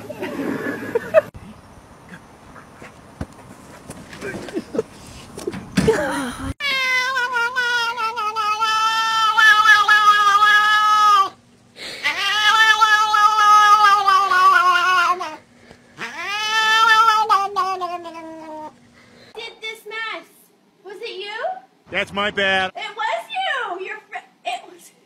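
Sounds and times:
cat yowling: 6.6 - 11.4, 12.0 - 15.4, 16.0 - 18.7.

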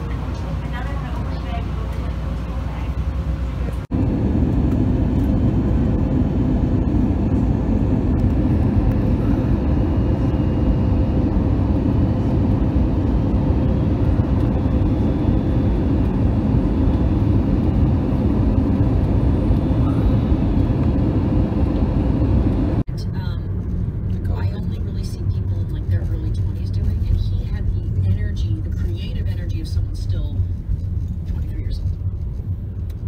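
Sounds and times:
jet engine and air rushing drone: 0.0 - 22.9.

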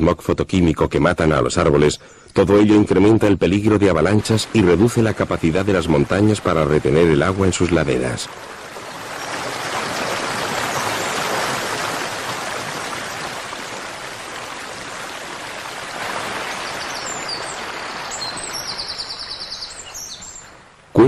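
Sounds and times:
stream rushing over boulders: 2.4 - 21.0
bird chirps: 16.6 - 20.6.

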